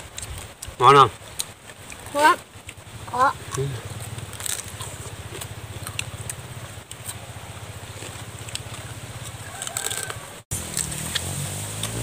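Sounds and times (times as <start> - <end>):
crab shells cracking and chewing: 3.5 - 7.2, 7.9 - 12.0.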